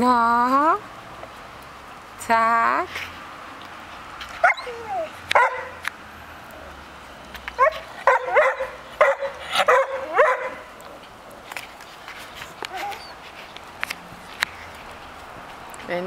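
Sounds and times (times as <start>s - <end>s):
dog barking in high yips: 4.4s - 5.8s, 7.6s - 10.6s.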